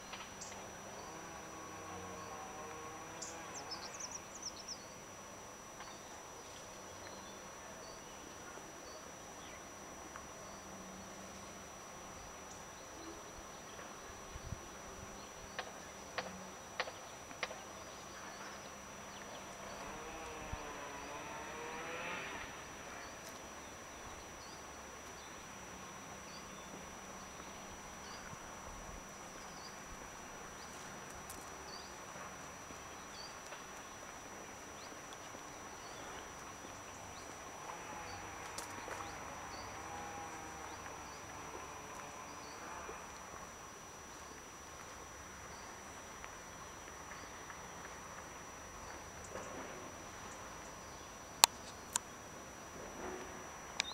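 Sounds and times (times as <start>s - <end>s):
low buzz: 0.0s - 4.9s, 17.8s - 31.9s, 35.8s - 43.4s
faint background hiss: 0.0s - 53.9s.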